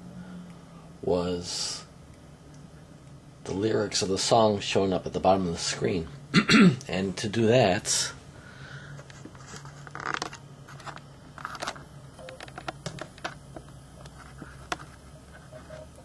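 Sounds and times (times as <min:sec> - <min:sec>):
low steady hum: 0:00.0 - 0:16.0
computer keyboard and mouse clicks: 0:11.6 - 0:14.9.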